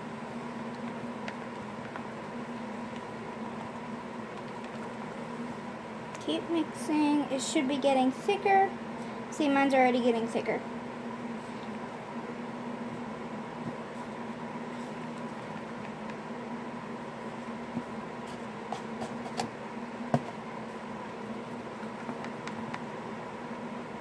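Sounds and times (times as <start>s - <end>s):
steady hum: 0.0s - 24.0s
pencil tapping and scraping a cup: 21.7s - 22.8s.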